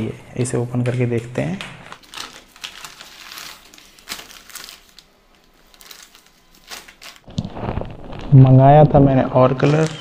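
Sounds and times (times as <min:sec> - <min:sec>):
paper and plastic bag crinkling: 0:02.0 - 0:08.4.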